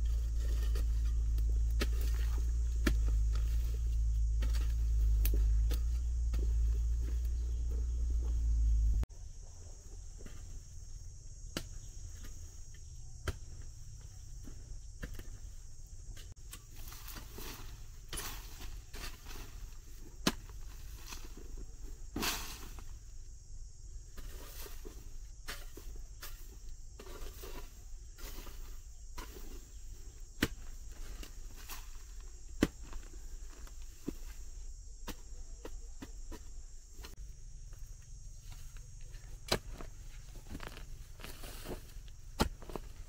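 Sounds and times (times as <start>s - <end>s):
insects buzzing: 0.0s - 43.0s.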